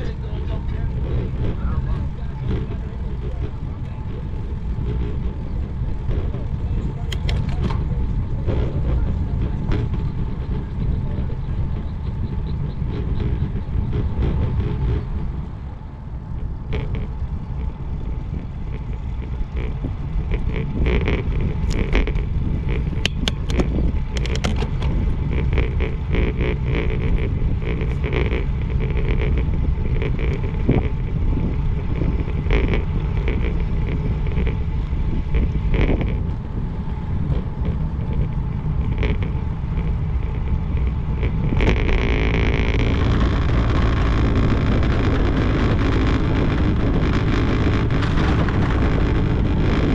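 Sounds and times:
bicycle tyre noise: 0.0s - 49.9s
wind buffeting microphone: 0.0s - 49.9s
clicks and rattles: 7.0s - 8.7s, 18.7s - 26.4s
bike rolling over wooden planks: 16.4s - 49.9s.

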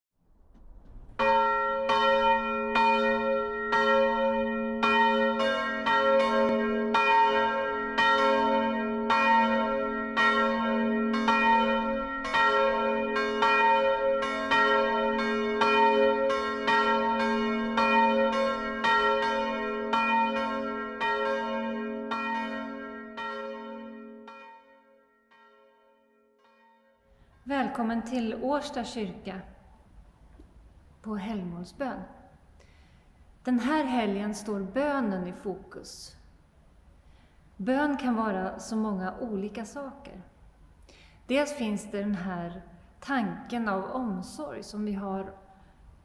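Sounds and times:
church bells ringing: 1.2s - 27.0s.

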